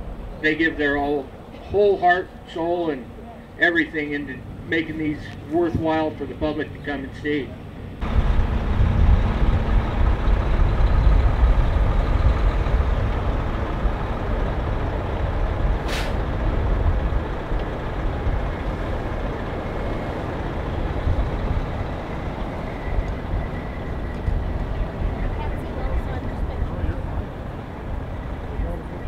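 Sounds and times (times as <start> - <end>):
truck diesel engine idling: 0.0 - 29.0
air hiss: 15.8 - 16.2.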